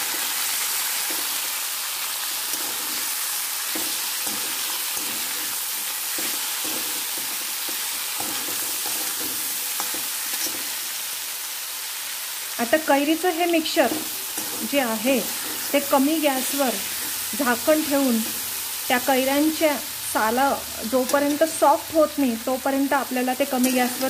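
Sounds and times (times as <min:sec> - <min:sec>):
mango frying in hot oil: 0:00.0 - 0:24.0
spatula stirring: 0:02.4 - 0:10.7, 0:13.8 - 0:18.7.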